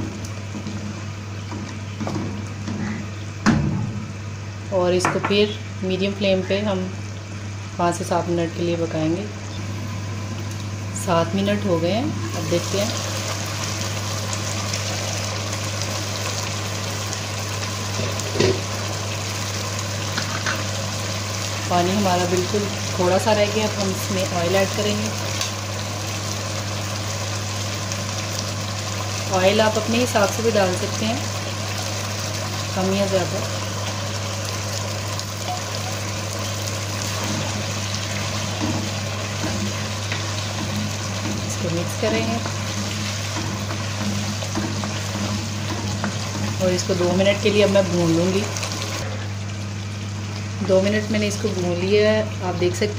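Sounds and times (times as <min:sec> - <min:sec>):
low constant hum: 0:00.0 - 0:52.9
curry bubbling and sizzling: 0:09.4 - 0:52.8
wooden spoon stirring in pan: 0:36.7 - 0:49.0.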